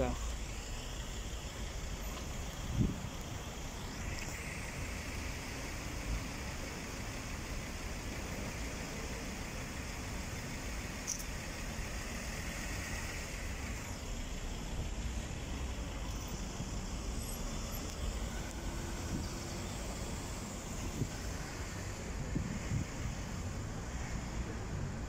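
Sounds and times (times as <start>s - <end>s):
road traffic rumble: 0.0s - 25.0s.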